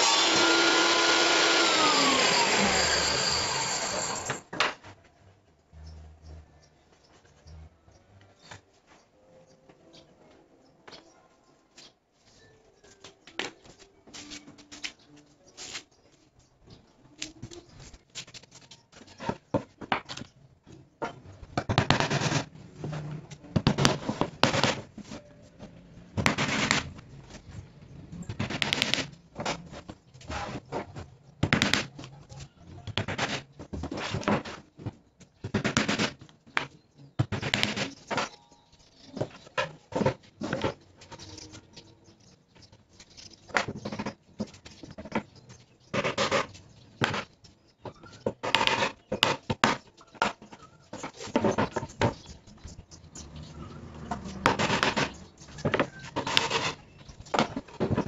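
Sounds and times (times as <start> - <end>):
hammer driving nails into plywood: 28.3 - 29.6.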